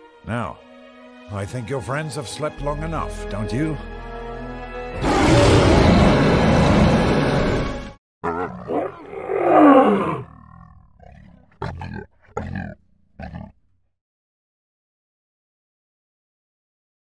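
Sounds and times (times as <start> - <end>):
lion growl: 5.0 - 13.6
lion roaring: 5.0 - 13.6.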